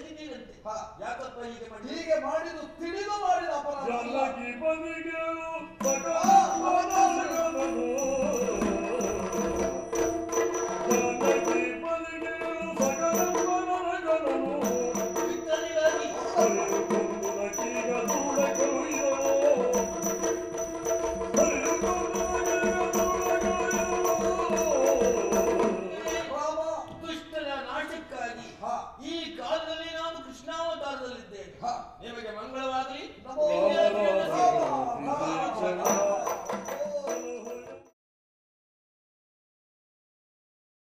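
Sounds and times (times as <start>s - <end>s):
drum strokes and percussion: 5.8s - 27.4s, 35.8s - 37.9s
wavering melodic line: 14.4s - 26.6s.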